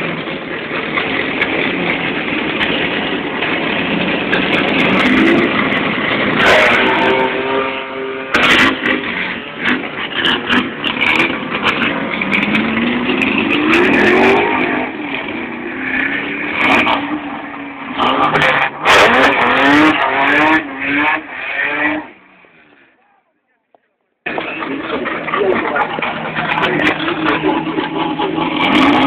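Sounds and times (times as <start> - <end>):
car engine revving: 0.0 - 22.9, 24.2 - 29.0.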